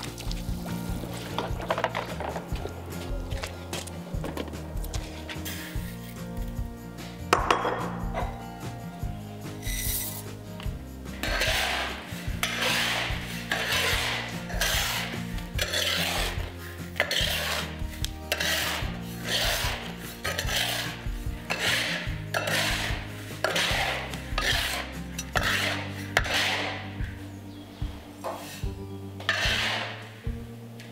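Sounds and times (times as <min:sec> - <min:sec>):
metal spatula scraping salt in wok: 0:09.5 - 0:10.4, 0:11.1 - 0:27.0, 0:28.4 - 0:30.2.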